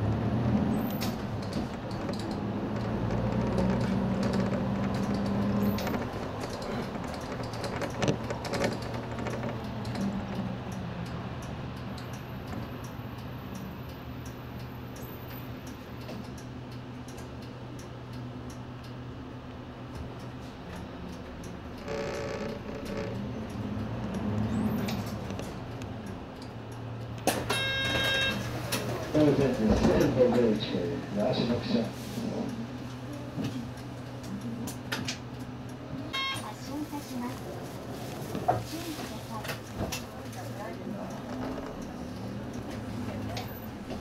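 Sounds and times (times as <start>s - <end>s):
bus engine hum: 0.0s - 44.0s
small clicks and rattles: 1.4s - 10.4s.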